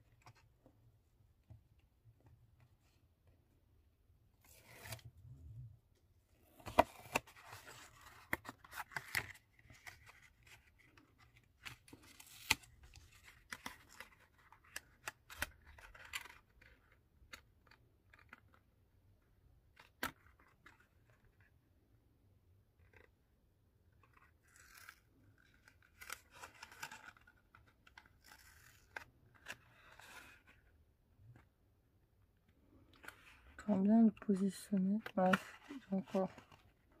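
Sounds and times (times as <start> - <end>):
cardstock crinkling and rustling: 6.5 - 18.6, 32.8 - 37.0.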